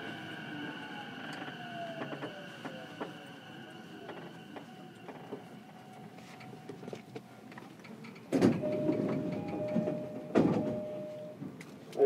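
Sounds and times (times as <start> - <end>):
train doors opening rush: 0.0 - 11.8
train interior hum: 0.0 - 12.0.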